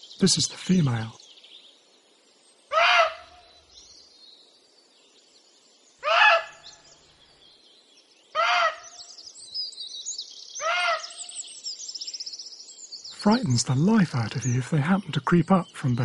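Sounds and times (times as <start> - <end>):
small bird chirping: 0.0 - 16.0
deer alarm barks: 2.7 - 3.4, 6.0 - 6.6, 8.4 - 8.8, 10.6 - 11.1.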